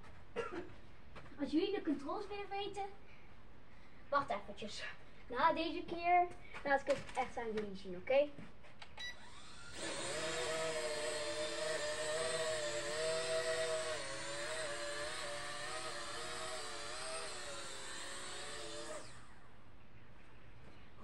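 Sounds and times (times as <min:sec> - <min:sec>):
toy jet electric motors whining: 0:09.2 - 0:19.5.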